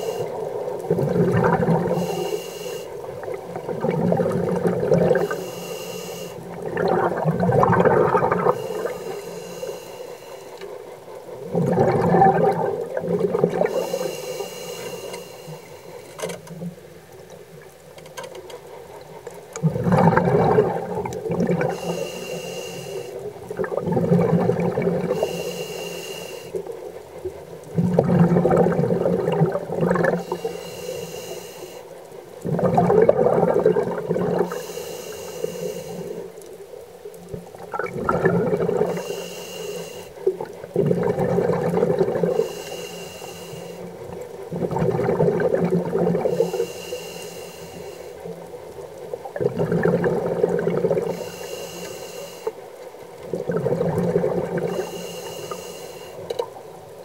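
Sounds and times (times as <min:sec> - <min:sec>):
regulator hissing inhale: 0:00.0 - 0:00.6, 0:01.7 - 0:03.2, 0:05.1 - 0:06.7, 0:08.4 - 0:10.9, 0:13.7 - 0:16.1, 0:21.6 - 0:23.4, 0:25.1 - 0:26.8, 0:30.1 - 0:32.0, 0:34.4 - 0:36.4, 0:38.8 - 0:40.3, 0:42.2 - 0:44.2, 0:46.2 - 0:48.4, 0:51.0 - 0:52.6, 0:54.6 - 0:56.3
exhaled bubbles rushing: 0:00.0 - 0:02.1, 0:03.0 - 0:05.4, 0:06.4 - 0:09.1, 0:11.3 - 0:13.8, 0:19.6 - 0:21.9, 0:23.2 - 0:25.4, 0:27.6 - 0:30.4, 0:32.4 - 0:34.6, 0:37.3 - 0:39.1, 0:40.2 - 0:42.5, 0:43.9 - 0:46.5, 0:48.4 - 0:51.3, 0:53.2 - 0:54.8.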